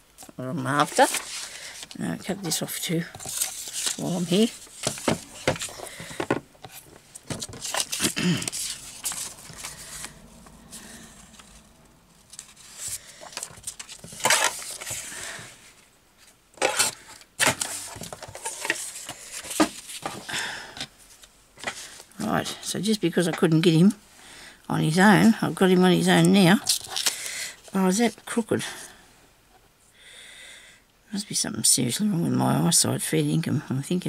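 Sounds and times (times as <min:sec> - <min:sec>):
paper rustling: 0:00.7 - 0:20.3.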